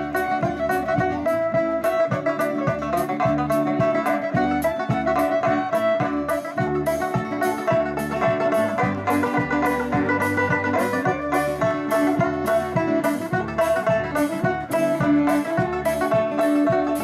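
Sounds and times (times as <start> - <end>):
acoustic guitar: 0.0 - 17.0
banjo: 0.0 - 17.0
fiddle: 0.0 - 17.0.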